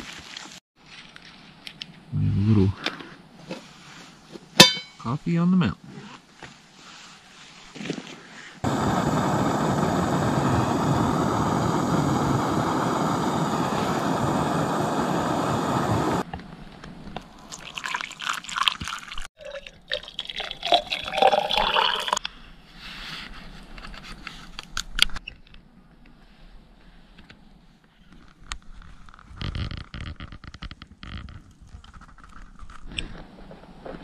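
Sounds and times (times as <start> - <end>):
camp stove burning: 8.6 - 16.3
hot water pouring: 17.4 - 22.2.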